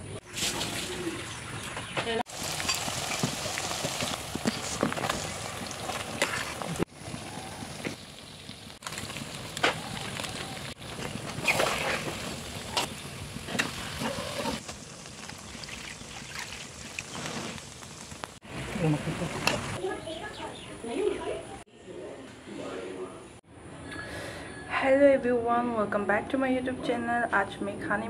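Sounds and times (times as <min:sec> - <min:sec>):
food sizzling and bubbling in wok: 0:00.2 - 0:19.8.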